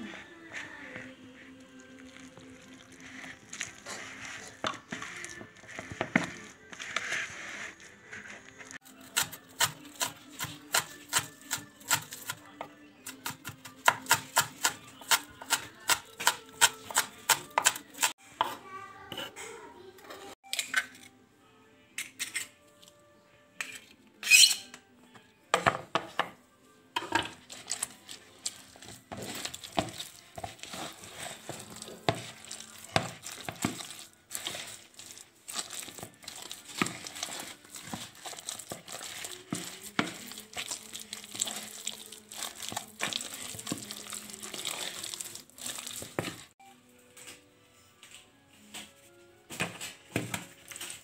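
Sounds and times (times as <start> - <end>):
wooden spoon scraping plastic bowl: 0.0 - 8.8, 27.2 - 46.6.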